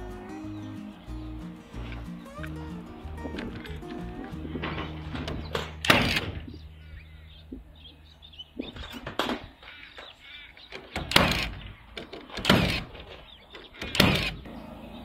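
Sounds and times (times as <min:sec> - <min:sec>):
nail gun firing: 0:05.8 - 0:06.4, 0:10.9 - 0:13.0, 0:13.8 - 0:14.4.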